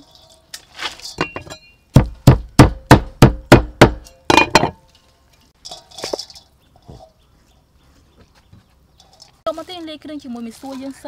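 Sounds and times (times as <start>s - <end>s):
light clatter: 4.3s - 7.2s.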